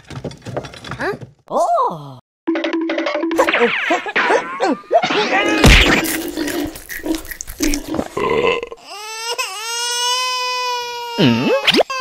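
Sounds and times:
watermelon splitting smack: 0:05.6 - 0:08.1.

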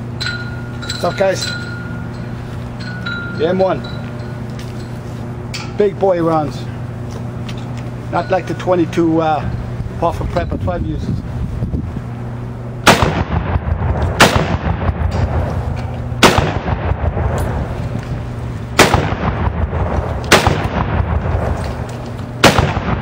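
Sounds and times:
rifle shots with echo: 0:12.8 - 0:15.3, 0:16.2 - 0:17.4, 0:18.8 - 0:21.6, 0:22.4 - 0:23.0.

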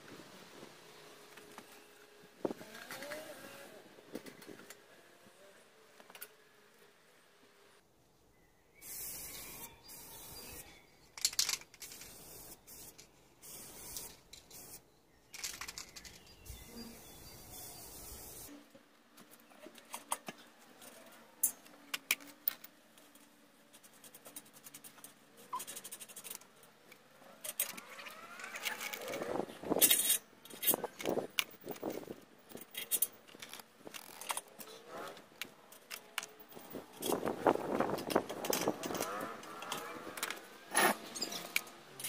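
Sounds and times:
metal tools clinking and scraping: 0:27.4 - 0:34.8.

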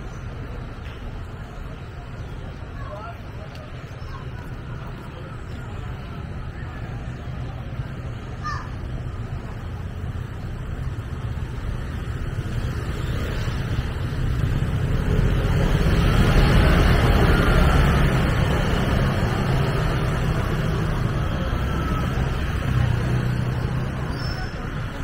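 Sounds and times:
vehicle engine passing by: 0:14.4 - 0:24.7.

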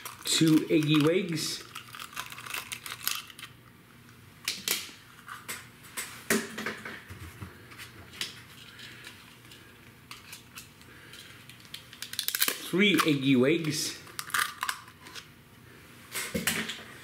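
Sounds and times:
eggshells clicking and cracking: 0:00.0 - 0:03.6, 0:10.2 - 0:13.1, 0:14.1 - 0:15.0.

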